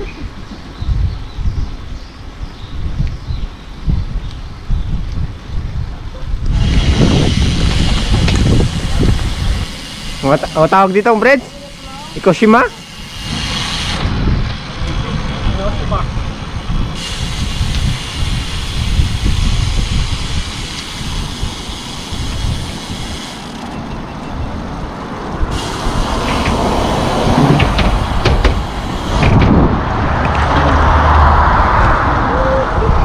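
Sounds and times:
wind buffeting microphone: 0.0s - 10.6s, 12.1s - 33.0s
steady high hiss: 6.6s - 14.0s, 25.5s - 29.3s.

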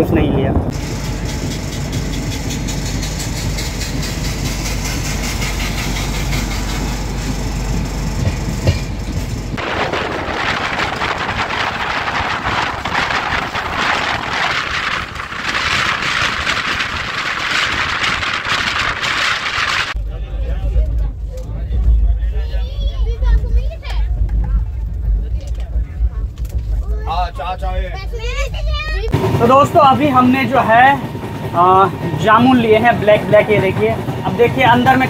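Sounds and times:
train wheels rumbling on rails: 0.0s - 35.0s
hissing rush: 0.7s - 20.0s.

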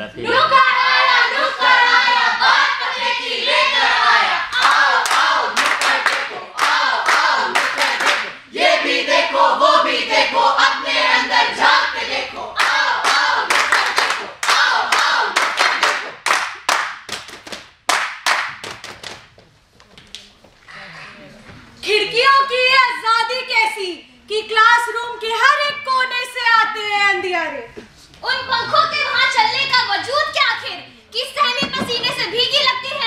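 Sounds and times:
group of voices singing: 0.1s - 16.2s
rhythmic hand clapping: 4.5s - 8.4s, 12.6s - 19.4s.

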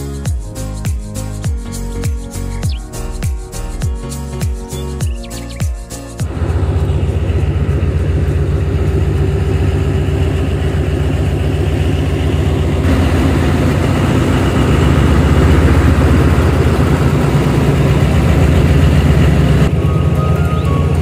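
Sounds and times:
diesel locomotive engine droning: 6.2s - 21.0s.

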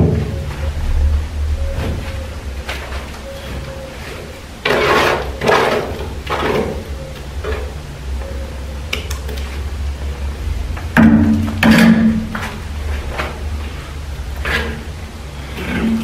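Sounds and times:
steady low hum: 0.0s - 16.0s
trowel scraping plaster on wall: 4.6s - 6.8s.

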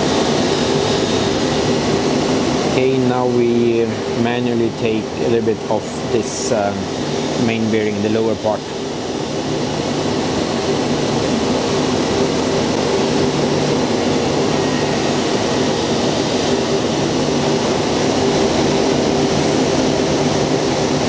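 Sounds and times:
milling machine cutting metal: 0.0s - 21.0s.

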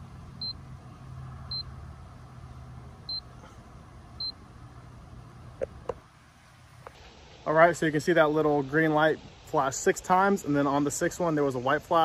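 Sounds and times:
steady low hum: 0.0s - 12.0s
short high-pitched beeps: 0.4s - 0.6s, 1.5s - 1.7s, 3.1s - 3.3s, 4.2s - 4.4s.

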